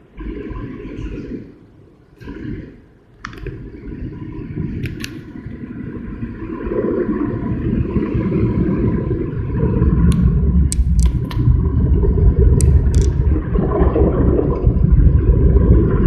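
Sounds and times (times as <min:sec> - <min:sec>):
sharp ticks: 0:10.1 - 0:11.5.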